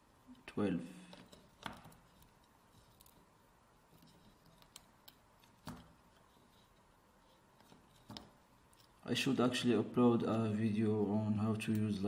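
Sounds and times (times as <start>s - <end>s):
wire pins clicking into sockets: 3.9s - 6.3s.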